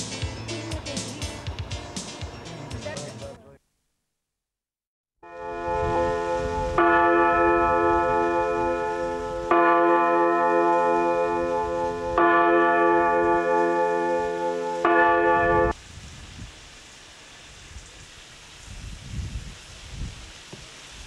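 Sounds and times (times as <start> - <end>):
church bell ringing: 5.2 - 15.8.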